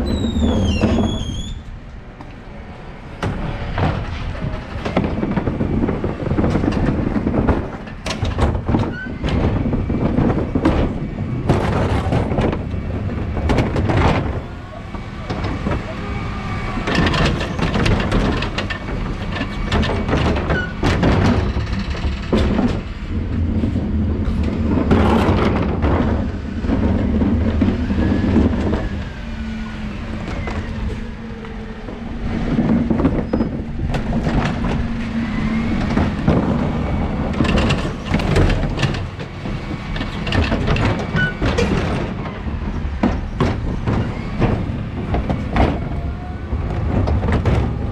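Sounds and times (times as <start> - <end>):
wheelie bins clattering: 30.0 - 47.9.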